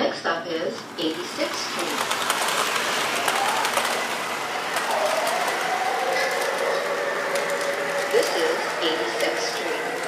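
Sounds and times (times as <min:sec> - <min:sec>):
model train wheels rolling: 0:00.7 - 0:10.0.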